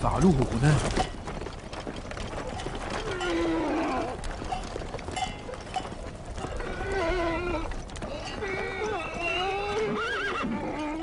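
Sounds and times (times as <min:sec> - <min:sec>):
hooves knocking on stony ground: 0:00.0 - 0:11.0
horses whinnying: 0:02.5 - 0:04.5, 0:06.4 - 0:11.0.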